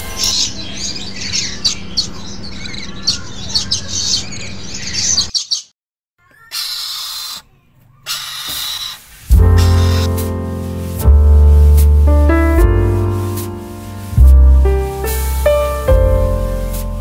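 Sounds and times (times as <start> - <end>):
parrots chirping and squawking: 0.0 - 5.7, 6.3 - 10.1
short bursts of hiss: 8.1 - 17.0.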